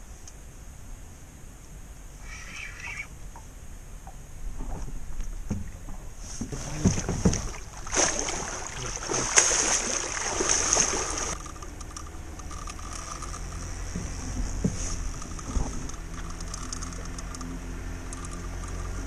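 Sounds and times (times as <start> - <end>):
large fish splashing in water: 6.7 - 11.4.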